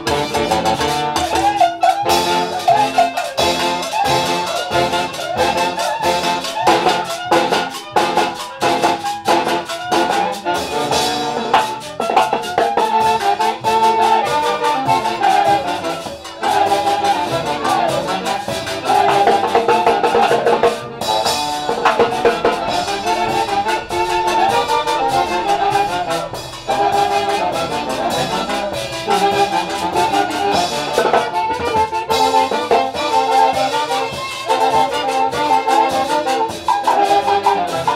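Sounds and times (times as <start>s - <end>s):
orchestra playing lively music: 0.0s - 37.9s
trumpets: 0.0s - 37.9s
steady drum beat: 10.4s - 35.5s.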